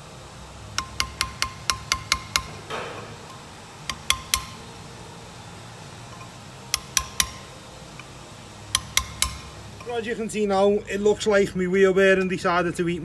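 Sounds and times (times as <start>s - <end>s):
hammer tapping metal chisel: 0.7s - 4.6s, 6.1s - 7.5s, 8.7s - 10.0s.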